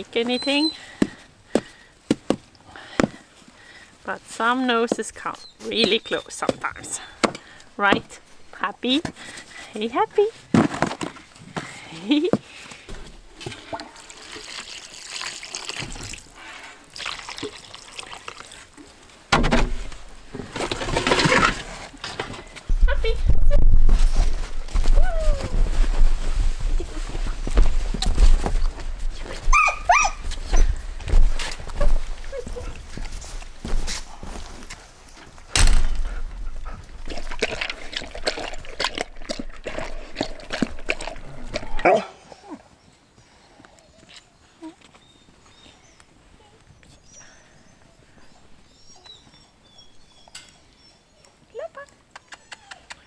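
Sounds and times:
loud thump: 0:35.6 - 0:36.1
dog chewing and lapping: 0:36.6 - 0:41.8.

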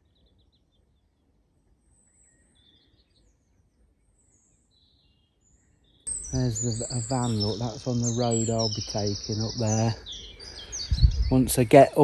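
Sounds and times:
birds chirping and trilling: 0:00.0 - 0:12.0.

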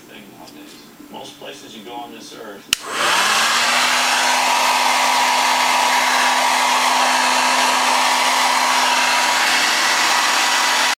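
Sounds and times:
hair dryer blowing air: 0:02.7 - 0:11.0
hair dryer motor whine: 0:02.7 - 0:11.0.

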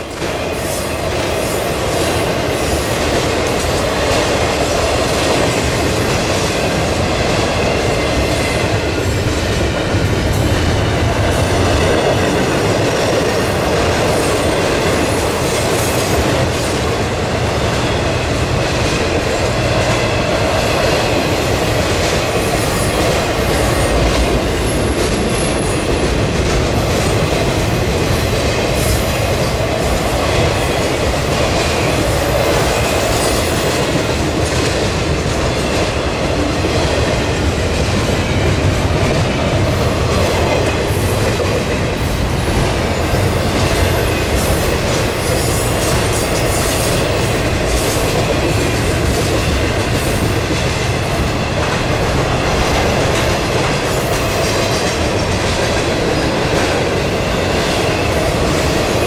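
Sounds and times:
freight train rumble and clatter: 0:00.0 - 0:59.0.

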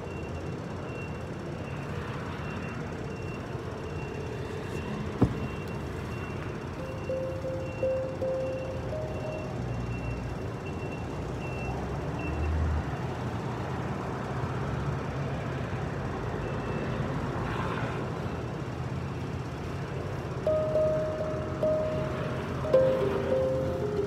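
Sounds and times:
street traffic rumble: 0:00.0 - 0:24.0
handpan notes ringing: 0:06.8 - 0:09.7, 0:20.5 - 0:24.0.

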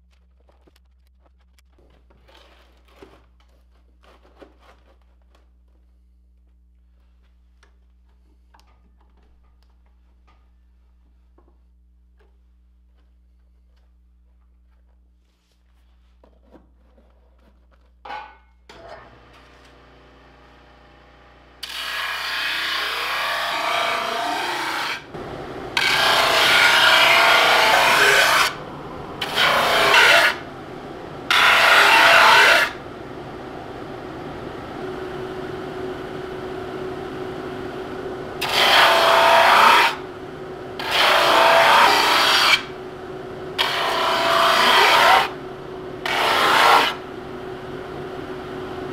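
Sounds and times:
drum sander running: 0:18.8 - 0:48.9.

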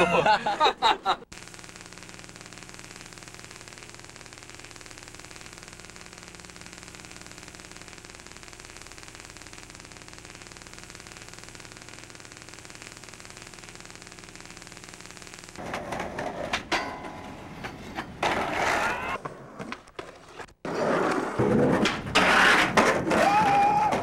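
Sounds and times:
low electrical hum: 0:00.0 - 0:18.5
steady hiss: 0:00.4 - 0:15.6.

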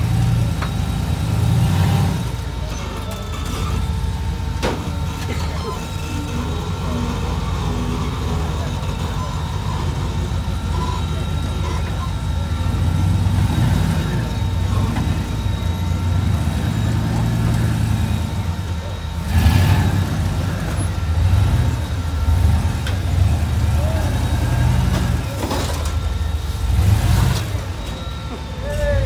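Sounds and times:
buggy engine at low revs: 0:00.0 - 0:29.0.

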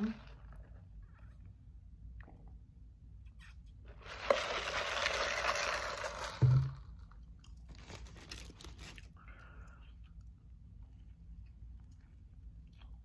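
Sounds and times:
paper wrapper crinkling: 0:04.0 - 0:09.2.

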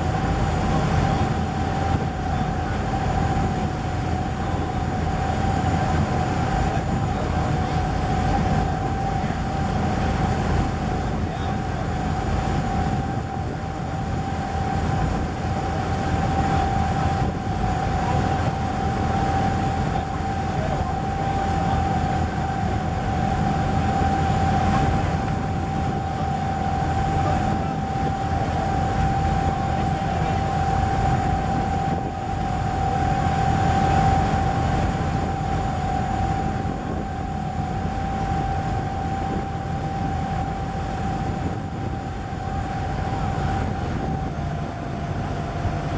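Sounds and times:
motorboat engine rumbling: 0:00.0 - 0:45.9.

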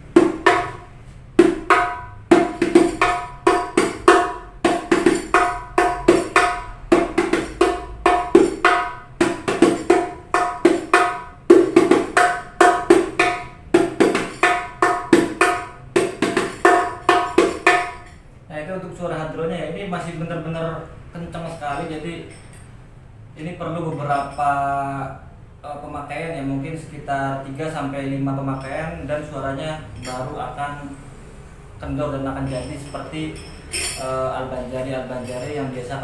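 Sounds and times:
hand-struck frame drum: 0:00.0 - 0:18.1.

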